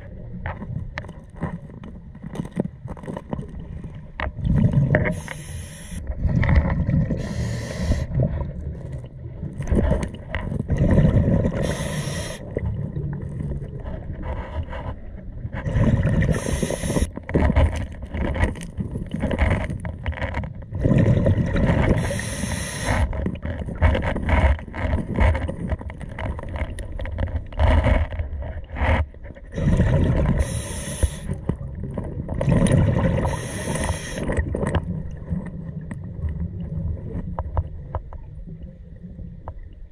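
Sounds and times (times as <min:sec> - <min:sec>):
diver breathing through regulator: 0:05.0 - 0:06.1, 0:07.1 - 0:08.2, 0:11.5 - 0:12.6, 0:15.7 - 0:17.1, 0:21.9 - 0:23.2, 0:29.5 - 0:31.4, 0:33.1 - 0:34.4
bubbling exhalations: 0:20.8 - 0:23.2, 0:29.5 - 0:37.1.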